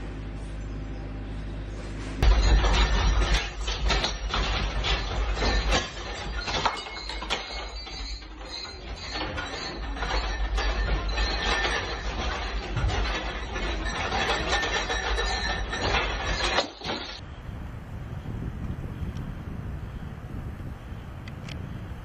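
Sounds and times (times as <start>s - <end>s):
irregular clicks and rattles: 2.2s - 17.2s
low earthquake rumble: 17.2s - 22.0s.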